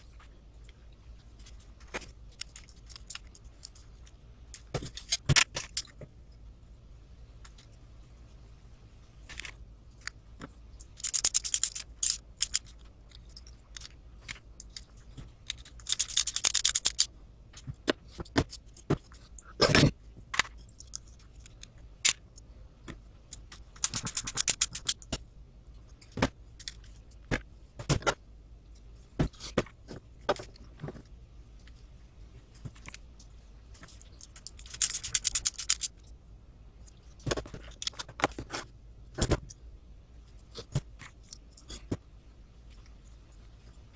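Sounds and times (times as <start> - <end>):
screwdriver clicking and scraping: 1.4 - 6.0, 9.3 - 22.4, 23.3 - 25.2, 33.8 - 36.1.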